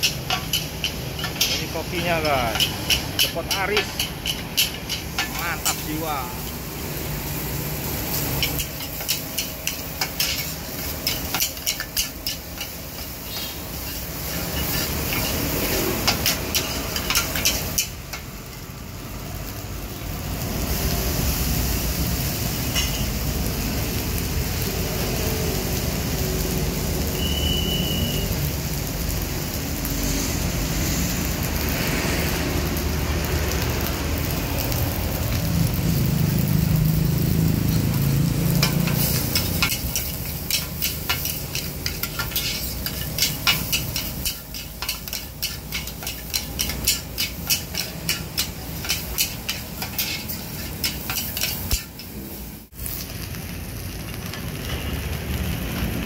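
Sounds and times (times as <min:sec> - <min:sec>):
ladle and spatula clanking on wok: 0:00.0 - 0:06.5, 0:08.4 - 0:18.3, 0:38.5 - 0:52.2
food sizzling: 0:00.0 - 0:56.0.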